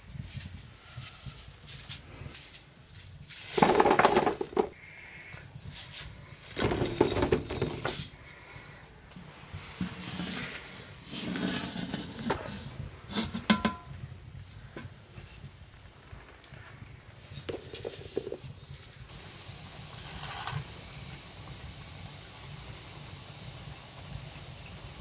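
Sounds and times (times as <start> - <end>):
metal skimmer scraping a tray: 9.7 - 13.9, 20.0 - 20.6.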